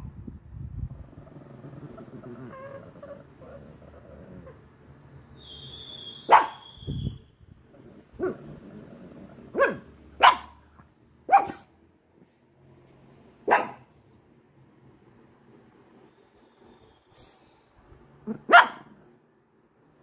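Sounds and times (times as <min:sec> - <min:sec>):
dog barking: 0:06.2 - 0:06.6, 0:08.2 - 0:08.4, 0:09.5 - 0:11.7, 0:13.4 - 0:13.9, 0:18.3 - 0:19.0.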